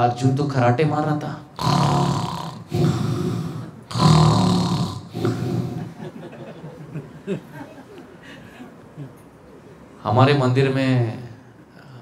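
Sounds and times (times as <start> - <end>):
man imitating snoring: 1.6 - 6.0.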